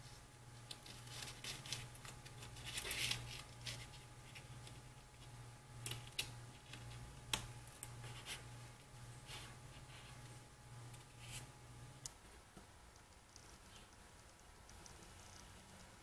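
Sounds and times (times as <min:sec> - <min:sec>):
rustling of tape and wood: 0:00.0 - 0:11.6
steady low hum: 0:00.0 - 0:16.0.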